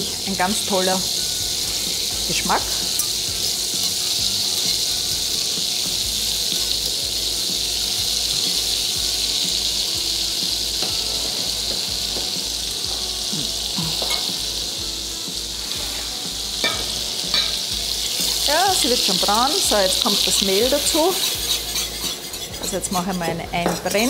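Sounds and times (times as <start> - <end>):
butter sizzling in a pan: 0.0 - 24.0
wire whisk ticking: 20.0 - 23.2.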